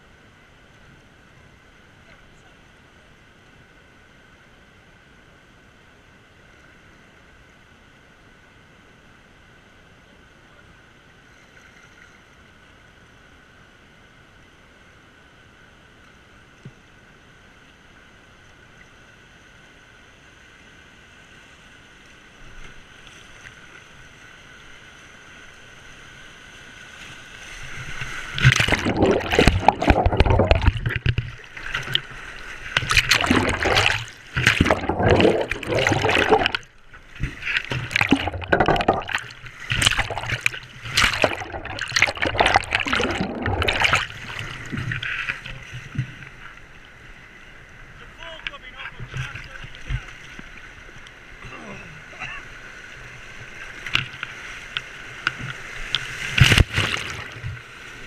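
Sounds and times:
river flowing hiss: 0.0 - 29.2
whitewater rushing over camera: 25.4 - 46.8, 47.9 - 50.7, 51.3 - 58.0.

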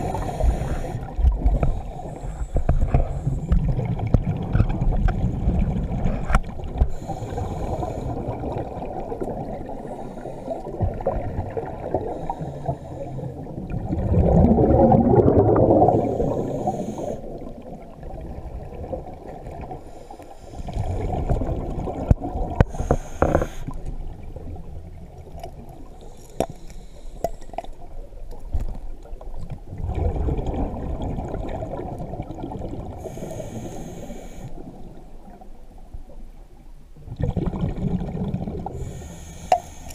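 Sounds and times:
regulator inhale hiss: 0.0 - 3.6, 6.8 - 8.3, 9.8 - 10.8, 11.9 - 13.4, 15.9 - 17.4, 19.8 - 20.8, 22.6 - 23.9, 26.0 - 27.6, 33.0 - 34.8, 38.8 - 39.9
exhaled bubbles rushing: 2.8 - 19.8, 20.7 - 25.8, 29.7 - 33.1, 37.1 - 39.0.

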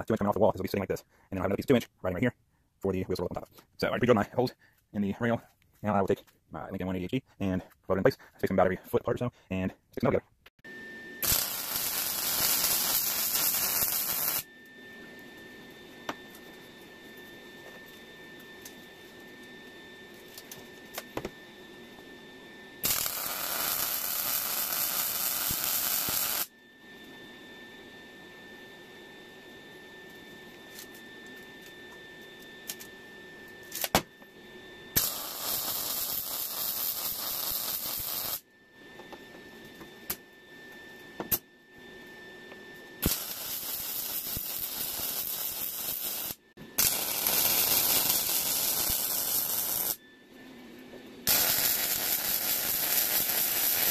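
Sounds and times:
faint steady whine: 0.0 - 53.9
welding arc crackle and hiss: 11.2 - 14.5, 22.8 - 26.5, 35.0 - 38.4, 43.0 - 50.0, 51.3 - 53.9.

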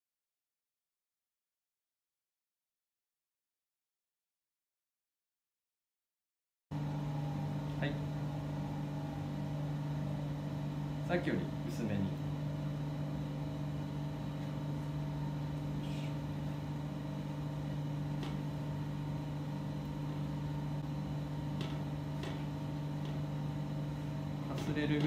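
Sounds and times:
machinery electric hum: 6.7 - 25.0.

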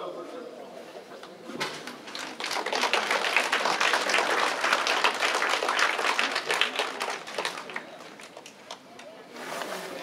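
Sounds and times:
people clapping: 1.8 - 9.1.

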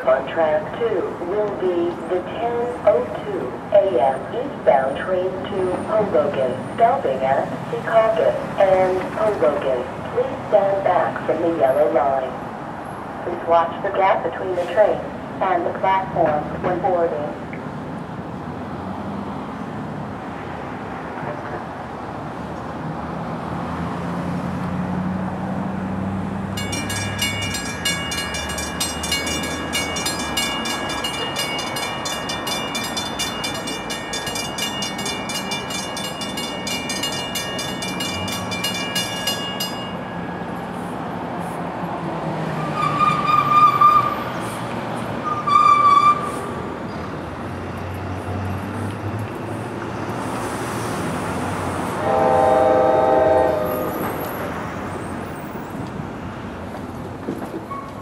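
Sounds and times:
train low rumble: 24.4 - 58.0
bell ringing rapidly: 26.6 - 40.0
train horn blasts: 52.0 - 54.2.

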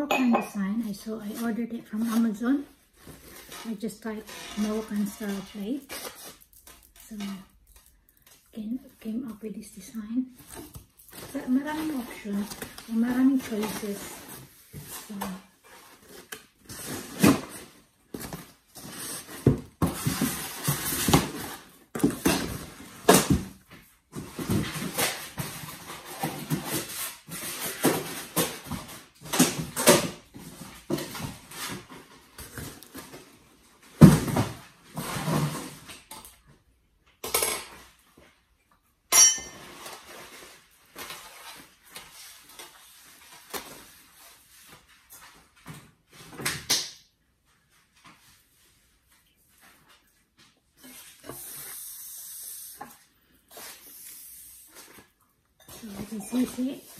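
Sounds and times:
paper and cardboard rustling: 0.8 - 36.1, 54.6 - 56.9.

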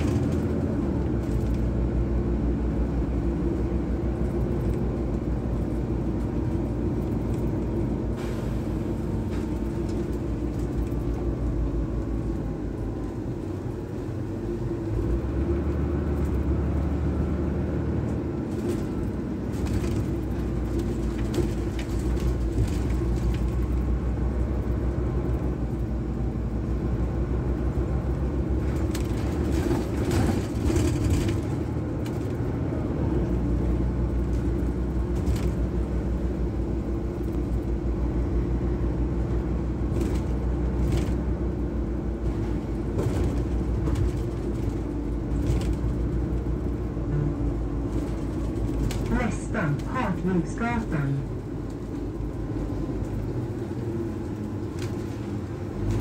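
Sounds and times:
bus drivetrain hum: 0.0 - 56.0
road noise: 0.0 - 56.0
clicks and rattles in cabin: 28.6 - 32.4, 42.3 - 46.7, 47.8 - 50.0.

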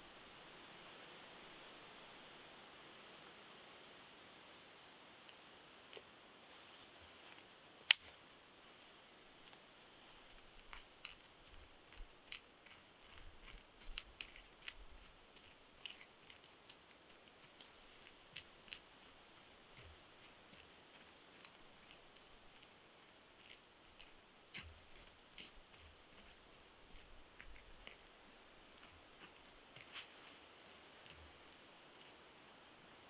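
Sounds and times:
sharp click: 7.9 - 8.2.

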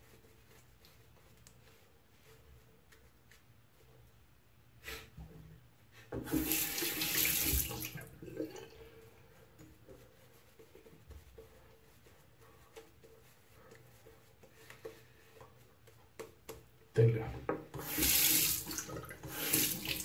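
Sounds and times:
bathroom tap running: 6.2 - 8.7, 17.5 - 20.0.

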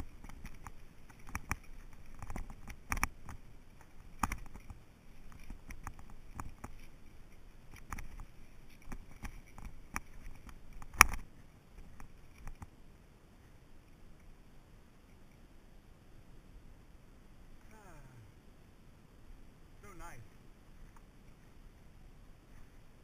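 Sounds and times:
footsteps on dirt path: 0.0 - 12.7.

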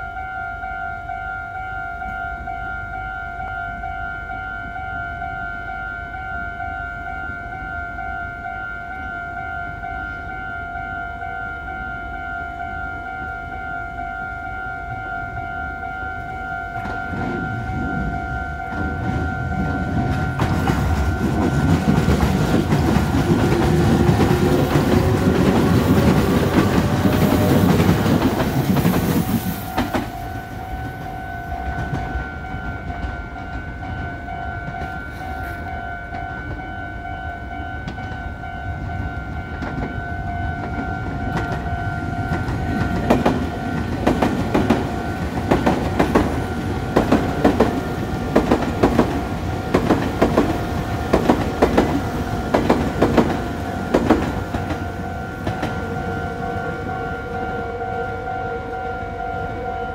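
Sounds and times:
level crossing bell ringing: 0.0 - 22.8, 53.4 - 59.9
electric train passing: 0.0 - 59.9
train wheels clacking on rail joints: 16.7 - 35.2, 39.4 - 56.1.

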